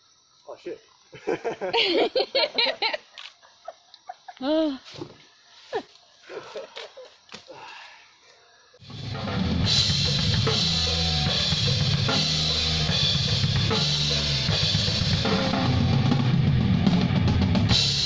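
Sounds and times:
bass guitar line: 8.8 - 18.0
drum kit beat: 8.8 - 18.0.

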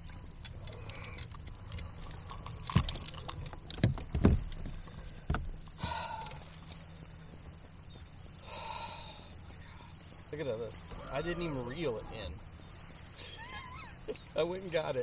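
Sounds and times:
fishing gear clattering on kayak: 0.0 - 7.5.

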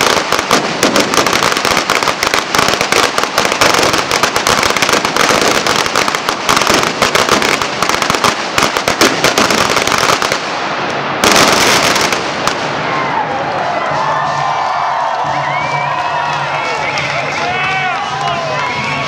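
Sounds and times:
firecrackers cracking and banging: 0.0 - 14.3.

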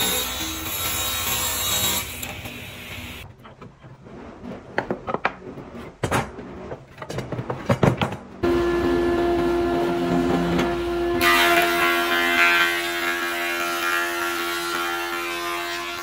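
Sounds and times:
boards and clamps clattering: 3.3 - 8.4
thickness planer running: 8.4 - 16.0.

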